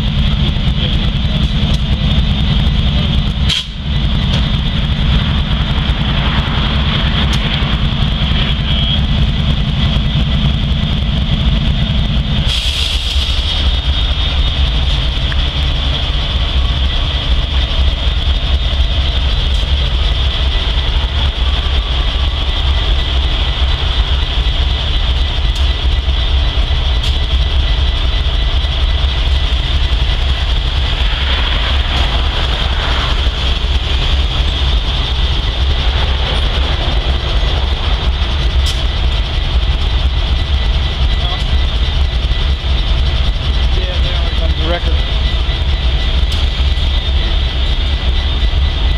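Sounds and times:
diesel locomotives idling: 0.0 - 48.9
vehicle engine humming: 0.0 - 48.9
loud hiss: 12.5 - 13.8.

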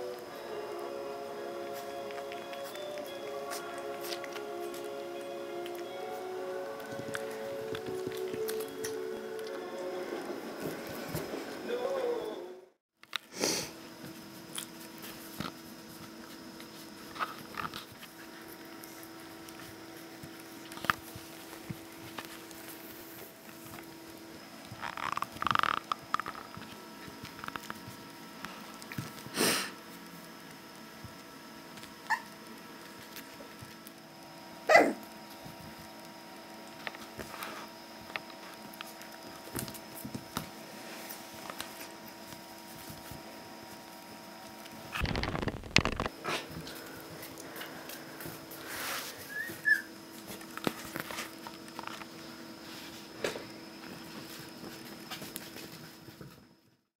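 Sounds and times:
puppy whimpering: 32.0 - 32.4, 34.7 - 35.0, 49.2 - 49.9
faint puppy squeak: 49.1 - 49.9.

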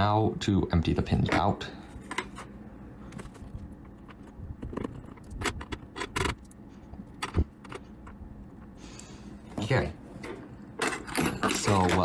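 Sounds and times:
metal pins clicking and clinking: 10.2 - 12.0.

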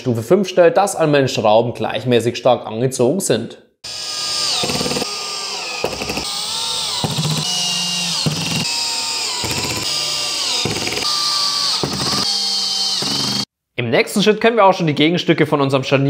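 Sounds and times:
cordless drill driving screws: 3.9 - 13.5.

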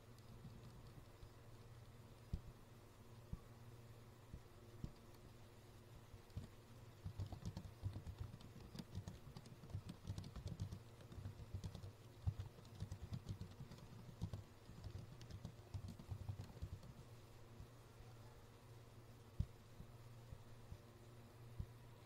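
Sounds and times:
low steady hum: 0.0 - 22.0
keyboard typing: 0.1 - 1.4, 6.3 - 17.1.

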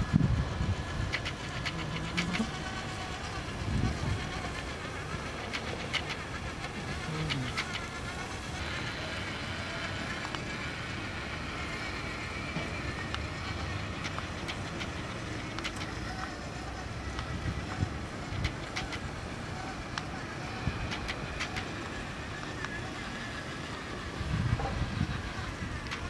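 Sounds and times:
small electric motor whining: 0.0 - 26.0
sharp clicks: 13.9 - 16.3.

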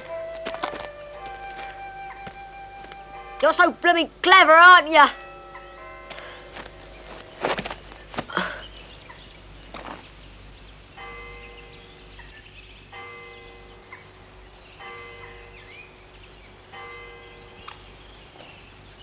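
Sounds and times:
church bell tolling: 5.0 - 7.4, 11.0 - 11.9, 13.0 - 13.9, 14.8 - 15.6, 16.7 - 17.6.

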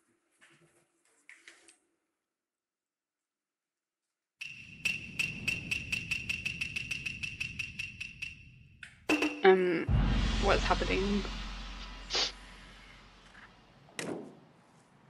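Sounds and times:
steady ringing tone: 4.4 - 10.4
fast light strikes: 4.4 - 14.0.

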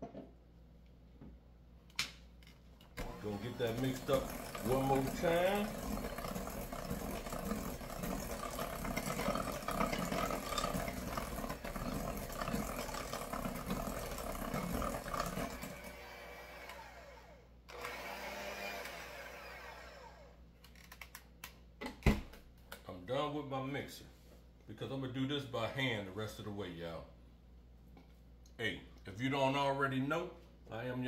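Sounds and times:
hand mixer beating in bowl: 3.0 - 20.2.

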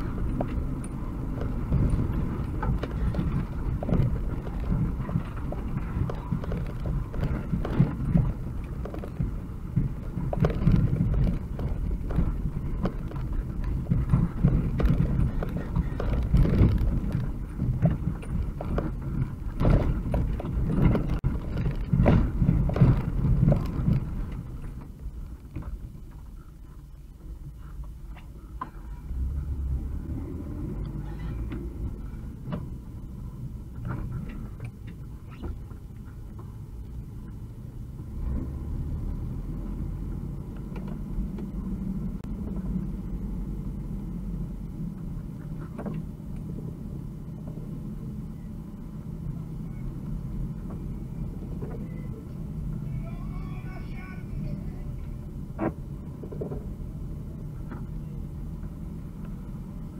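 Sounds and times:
knocks and rattles: 0.0 - 26.3
van engine and road rumble: 0.0 - 59.9.

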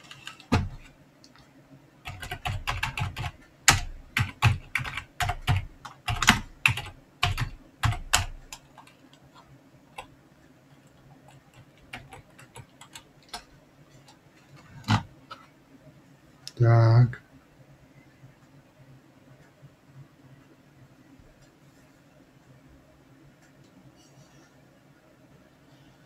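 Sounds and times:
typing on computer keyboard: 0.0 - 0.9, 2.0 - 10.1, 10.8 - 14.2.

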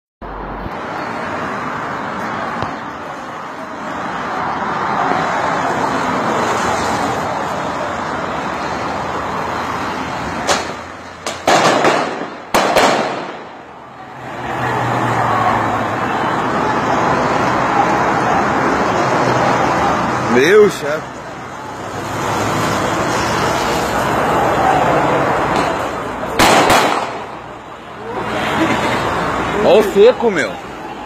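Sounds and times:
firecrackers banging: 10.4 - 13.7, 25.4 - 27.5.

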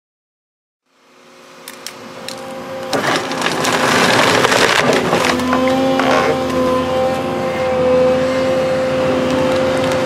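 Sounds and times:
excavator engine and hydraulics hum: 0.8 - 10.0
wood cracking and splintering: 1.7 - 7.9.

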